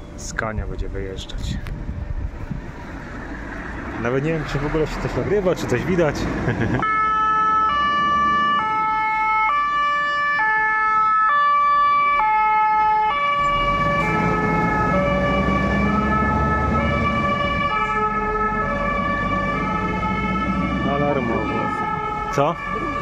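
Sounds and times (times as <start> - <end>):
diesel truck engine passing: 2.2 - 9.9, 13.0 - 23.0
two-tone fire engine siren: 6.8 - 23.0.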